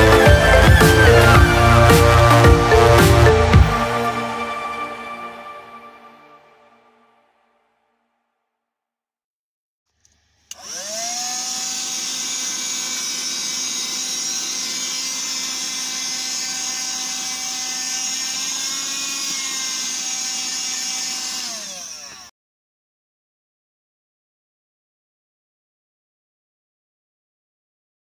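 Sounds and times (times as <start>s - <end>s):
handheld vacuum running: 9.9s - 22.3s.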